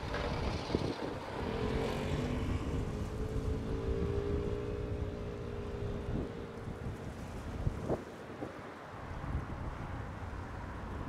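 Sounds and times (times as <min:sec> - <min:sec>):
distant engine drone: 0:00.0 - 0:08.1
wind noise on microphone: 0:00.0 - 0:11.0.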